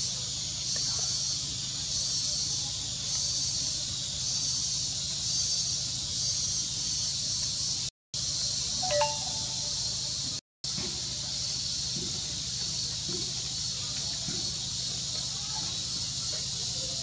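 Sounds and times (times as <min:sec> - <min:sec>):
high-pitched insect drone: 0:04.6 - 0:10.2.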